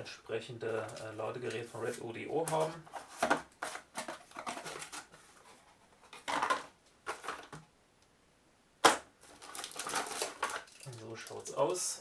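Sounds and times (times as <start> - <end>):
cardboard scraping and rustling: 1.9 - 7.5.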